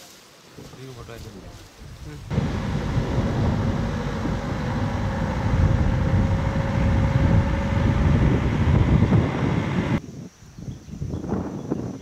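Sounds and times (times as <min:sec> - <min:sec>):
faint steady whine: 0:02.3 - 0:10.0
vehicle engine low rumble: 0:02.3 - 0:10.0.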